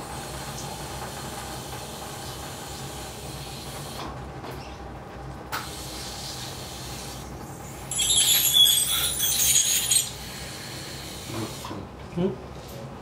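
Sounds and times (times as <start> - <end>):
dental drill whining: 7.7 - 11.5.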